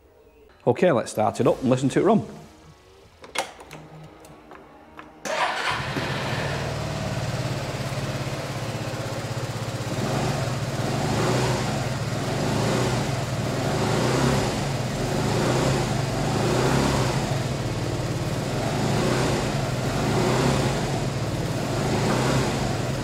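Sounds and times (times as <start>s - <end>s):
scooter engine starting and idling: 5.2s - 23.0s
engine revving: 5.3s - 23.0s.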